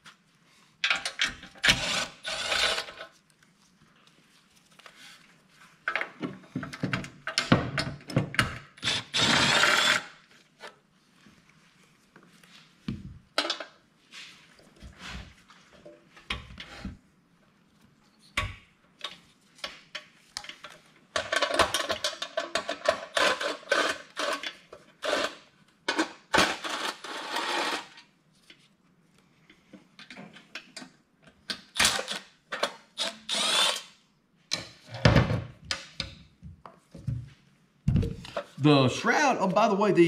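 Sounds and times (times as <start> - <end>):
cordless driver running: 8.8 - 10.0.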